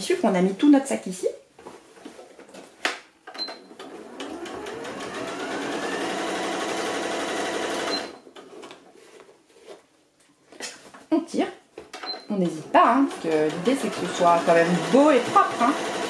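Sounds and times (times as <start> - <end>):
sewing machine stitching: 3.6 - 8.2, 12.5 - 16.0.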